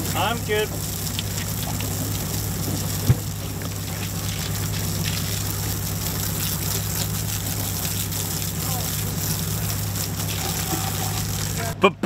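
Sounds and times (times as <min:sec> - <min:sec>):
hose spraying water on deck: 0:00.0 - 0:11.8
steady low hum: 0:00.0 - 0:12.0.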